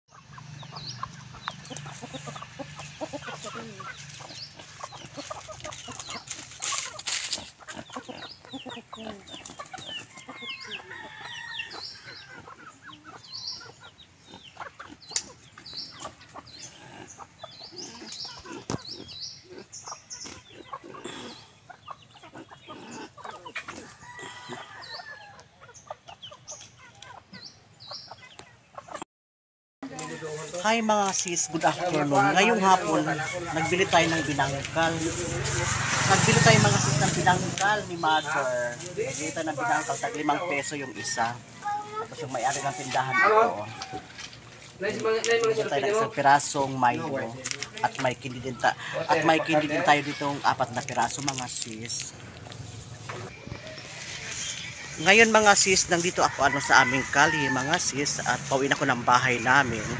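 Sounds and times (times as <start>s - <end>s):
chickens clucking: 0.1s - 29.0s, 29.8s - 59.9s.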